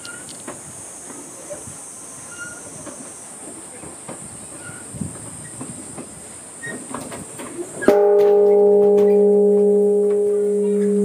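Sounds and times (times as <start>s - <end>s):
large bronze bell ringing: 7.9s - 11.0s.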